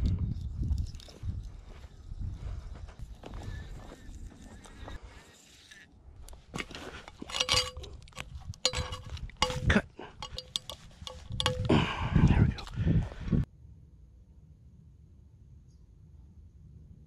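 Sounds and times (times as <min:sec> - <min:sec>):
rustling handling noise: 0:06.2 - 0:13.2
metallic clinks of spade blade: 0:07.1 - 0:12.0
ringing tone from metal blade: 0:08.6 - 0:11.7.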